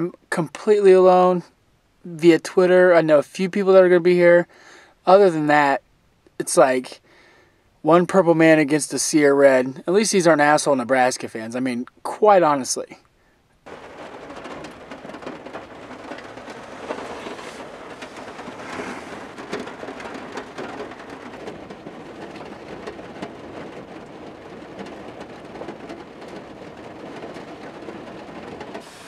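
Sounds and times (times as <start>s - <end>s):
rain on a car: 13.6s - 29.0s.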